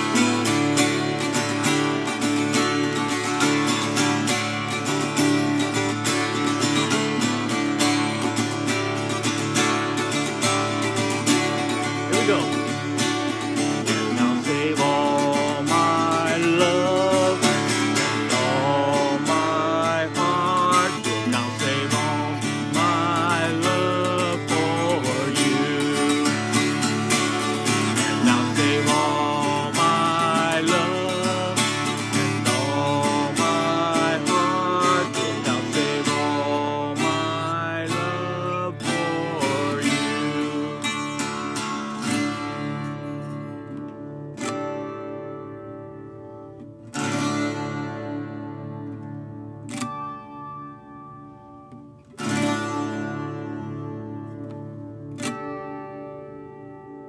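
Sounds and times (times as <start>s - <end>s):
acoustic guitar strumming: 0.0s - 57.0s
man singing wordless melody: 11.8s - 41.8s.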